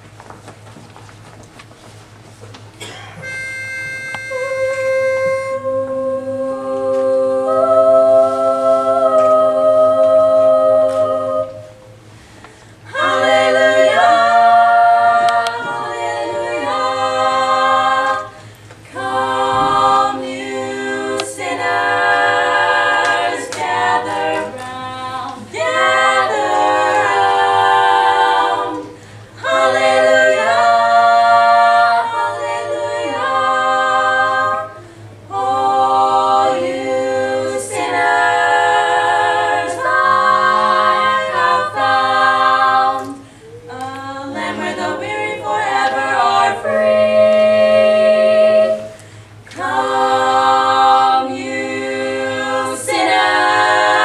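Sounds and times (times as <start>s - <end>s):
women singing a cappella harmony: 2.8s - 54.0s
pitch pipe note: 3.2s - 7.0s.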